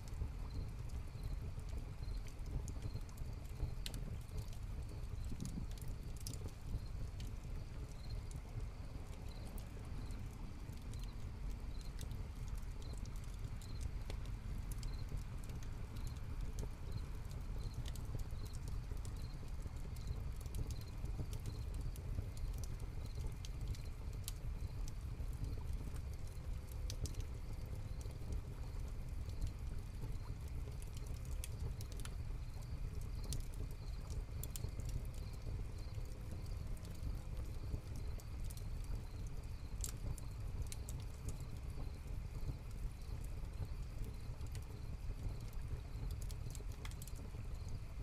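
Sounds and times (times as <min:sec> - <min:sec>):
constant low rumble: 0:00.0 - 0:48.0
fire crackling and popping: 0:00.0 - 0:48.0
crickets chirping: 0:47.2 - 0:47.9.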